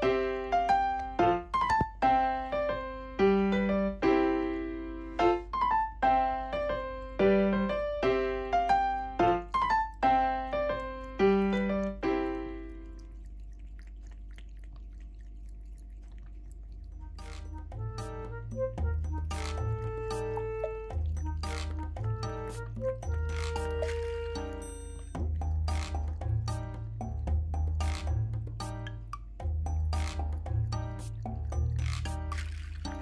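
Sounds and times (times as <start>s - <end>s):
gentle piano music: 0.0s - 13.3s, 17.0s - 33.0s
faint low hum: 10.6s - 17.8s.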